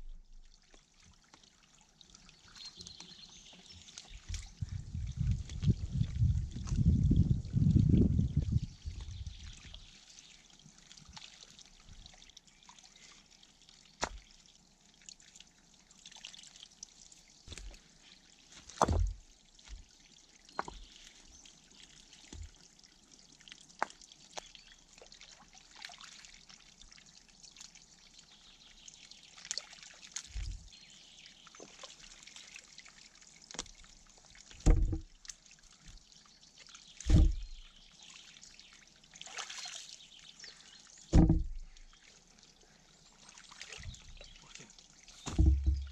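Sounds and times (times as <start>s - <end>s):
muddy water trickling and sloshing: 0.0s - 45.9s
knocks and dull thumps: 18.8s - 19.8s, 34.6s - 35.1s, 37.0s - 37.6s, 41.1s - 41.8s, 45.2s - 45.9s.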